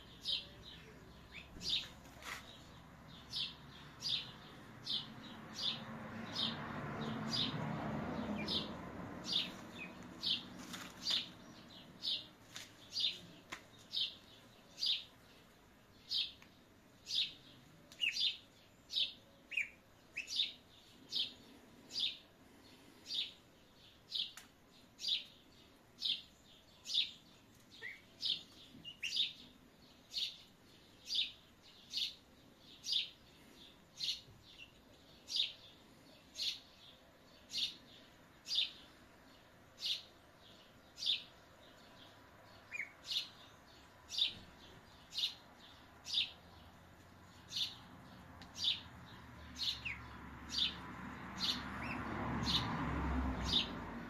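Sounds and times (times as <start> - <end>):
duckling peeping: 28.8 - 29.4, 42.7 - 43.4.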